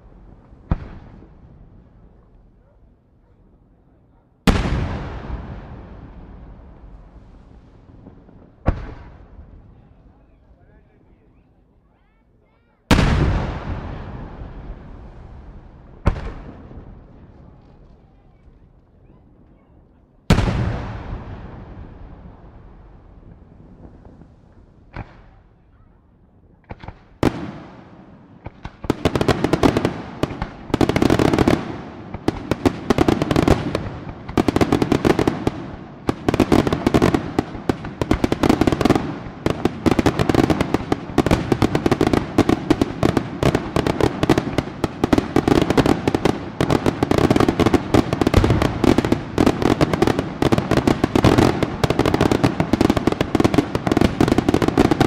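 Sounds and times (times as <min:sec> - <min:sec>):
fireworks bursting and crackling: 0:00.0 - 0:03.0, 0:03.8 - 0:11.1, 0:12.5 - 0:55.0.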